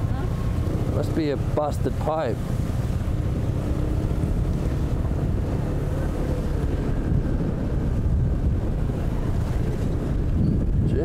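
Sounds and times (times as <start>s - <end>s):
tyres rolling on wet road: 0.0s - 10.9s
motorcycle engine running: 0.0s - 11.0s
wind buffeting microphone: 0.0s - 11.0s.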